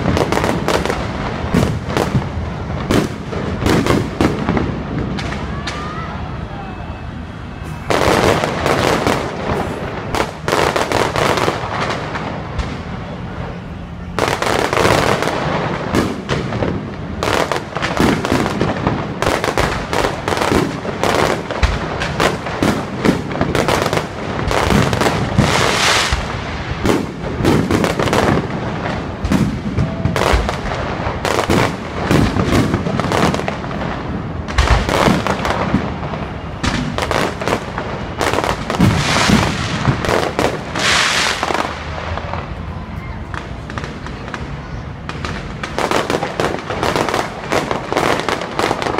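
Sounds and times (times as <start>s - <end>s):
fireworks bursting and crackling: 0.0s - 48.9s.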